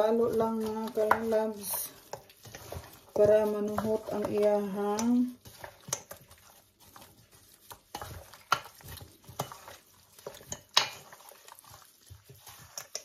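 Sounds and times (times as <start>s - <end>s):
wet slaps and squelches of meat: 4.9s - 13.0s.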